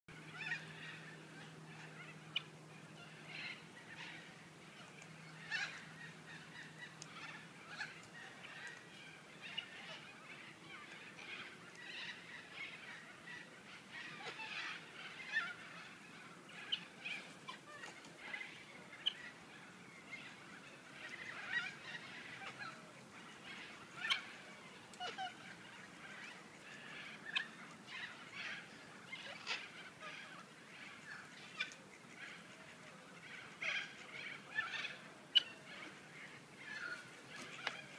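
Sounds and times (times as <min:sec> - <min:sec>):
harsh bird calls: 0:00.1 - 0:37.9.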